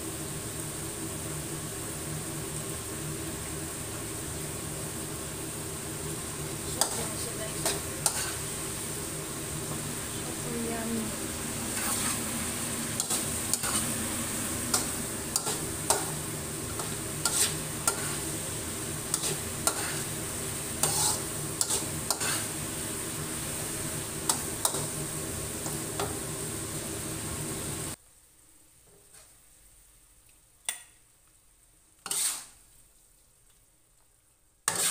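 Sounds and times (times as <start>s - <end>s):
stir-fry sizzling in wok: 0.0s - 29.9s, 31.8s - 33.2s, 34.6s - 34.9s
spatula scraping and knocking pan: 6.7s - 8.6s, 11.6s - 14.0s, 14.7s - 18.4s, 19.0s - 20.2s, 20.8s - 22.6s, 24.2s - 25.0s, 32.0s - 32.6s, 34.7s - 34.9s.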